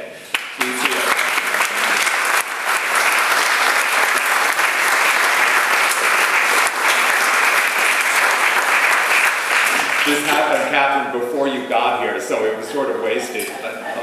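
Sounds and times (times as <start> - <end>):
audience applauding: 0.3 - 10.8.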